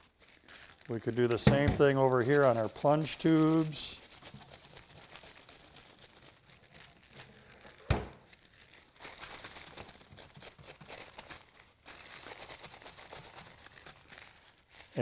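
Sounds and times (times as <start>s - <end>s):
wax paper crinkling on metal: 0.0s - 15.0s.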